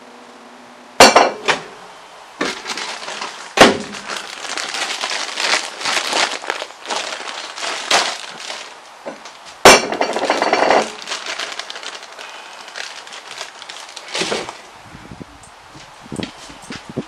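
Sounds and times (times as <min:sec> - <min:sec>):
plastic pouch crinkling: 0:02.4 - 0:14.7
vegetables rustling into bowl: 0:02.4 - 0:14.7.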